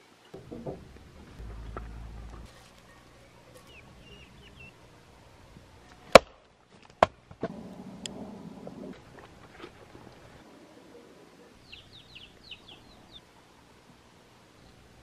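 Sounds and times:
bird chirps: 0.4 - 6.0, 11.6 - 13.3
axe splitting firewood: 6.0 - 7.4.

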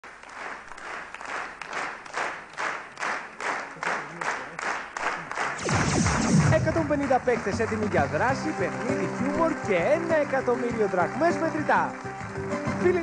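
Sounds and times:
audience clapping in rhythm: 0.0 - 13.0.

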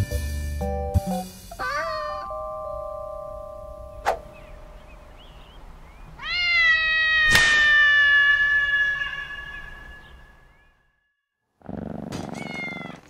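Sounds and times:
cat yowling: 1.6 - 2.4, 6.2 - 10.7, 12.3 - 13.0
sharp smack: 4.0 - 4.3, 7.3 - 7.8.

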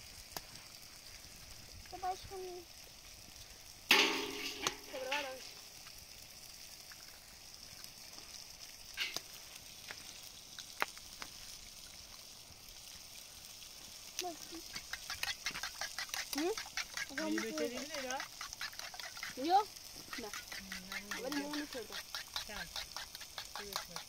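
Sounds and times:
tomatoes sizzling in a frying pan: 0.0 - 24.0
eggs tapped on a metal bowl: 3.9 - 5.3, 14.8 - 24.0
person speaking: 16.4 - 18.2, 19.3 - 22.8.

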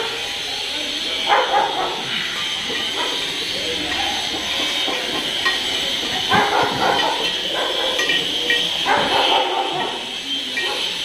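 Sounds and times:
dog barking: 1.2 - 2.2, 2.8 - 3.3, 6.2 - 8.1, 8.8 - 11.0.

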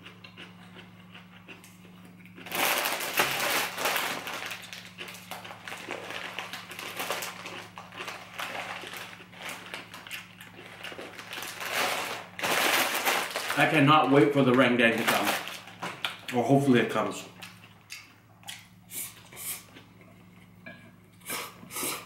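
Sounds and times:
plastic wrapping crinkling: 2.4 - 16.3.

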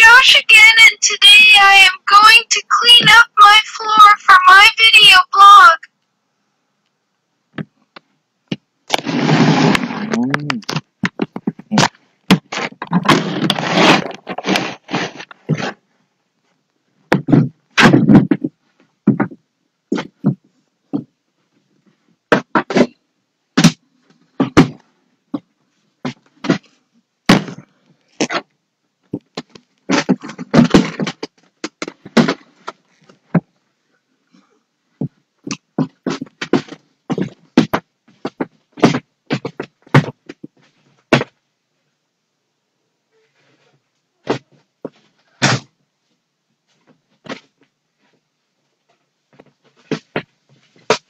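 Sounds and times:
household objects knocking and scraping: 8.5 - 15.8, 17.1 - 21.2, 23.6 - 33.5, 34.9 - 41.4.

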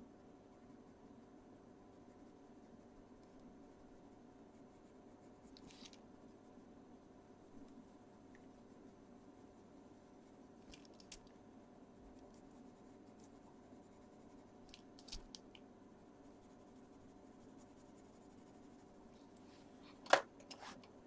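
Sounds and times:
pencil scratching on paper: 1.9 - 6.7, 12.0 - 15.2, 16.2 - 19.2.

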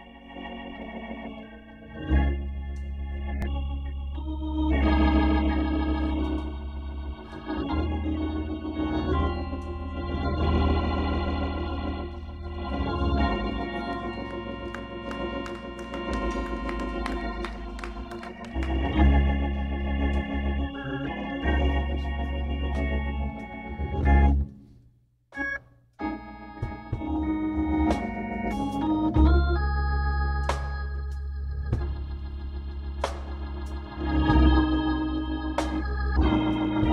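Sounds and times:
church organ chords: 0.0 - 24.6, 25.4 - 36.9.

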